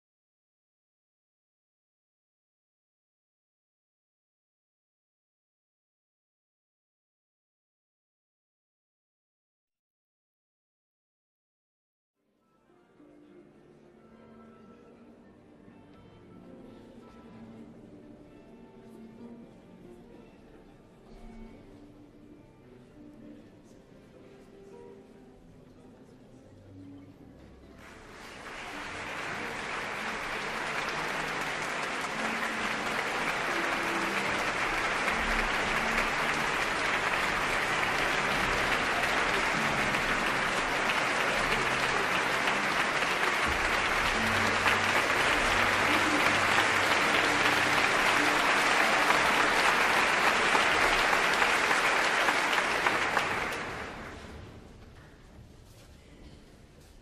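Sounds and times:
audience applauding: 0:27.8 - 0:54.4.

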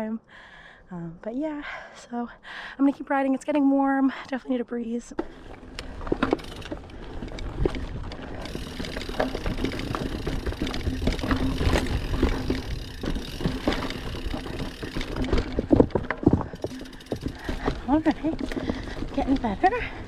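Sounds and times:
bike knocking and rattling: 0:05.2 - 0:20.0
bike tyres rolling on dirt: 0:05.2 - 0:20.0.

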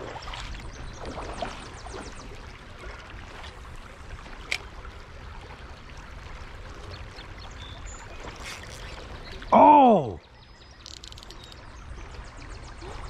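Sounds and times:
creek water running over rocks: 0:00.0 - 0:13.0.

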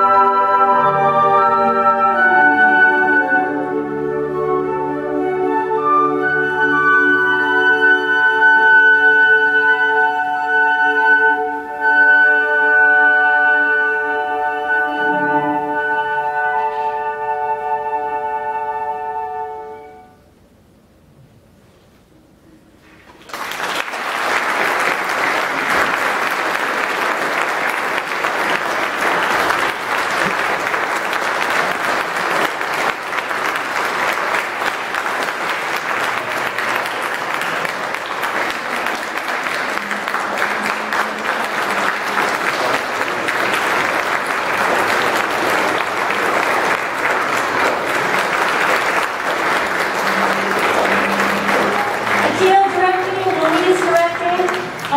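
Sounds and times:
audience applauding: 0:23.0 - 0:54.9.

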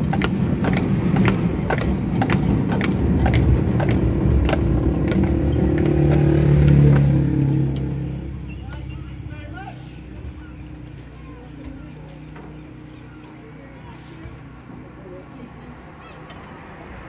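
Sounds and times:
horse hooves clopping: 0:00.0 - 0:09.0
tram wheels rumbling on track: 0:00.0 - 0:13.0.

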